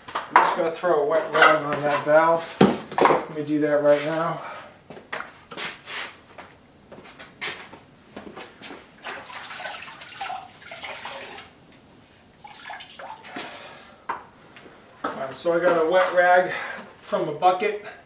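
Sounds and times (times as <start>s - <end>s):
water sloshing in a bucket: 9.0s - 11.6s, 12.3s - 13.6s.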